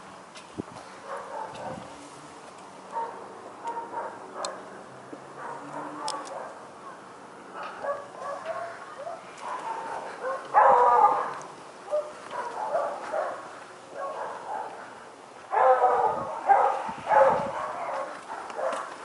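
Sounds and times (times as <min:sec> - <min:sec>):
dog barking: 0:01.0 - 0:01.9, 0:02.9 - 0:04.6, 0:05.4 - 0:06.6, 0:07.6 - 0:14.9, 0:15.5 - 0:19.0.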